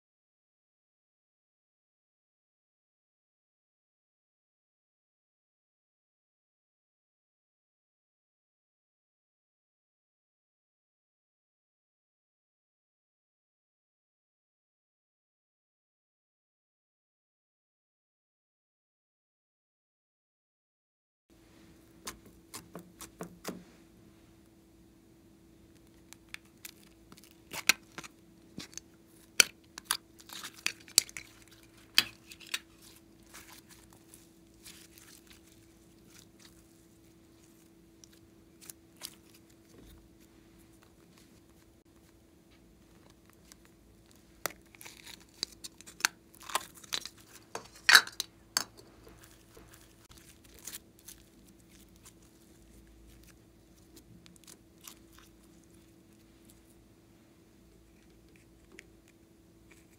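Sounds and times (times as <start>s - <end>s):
sticky slime crackles: 22.0s - 23.6s, 25.7s - 42.1s, 42.8s - 48.0s, 48.6s - 56.8s.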